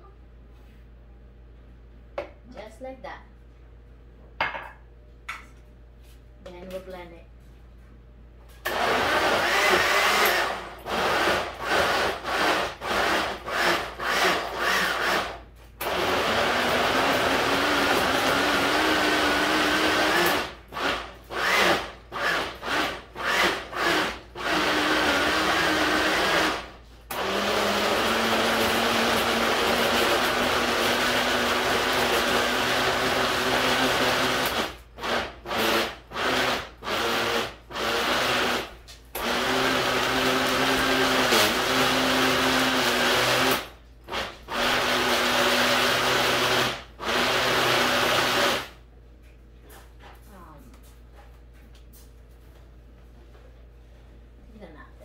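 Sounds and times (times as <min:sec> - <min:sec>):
blender running: 0:08.7 - 0:48.8.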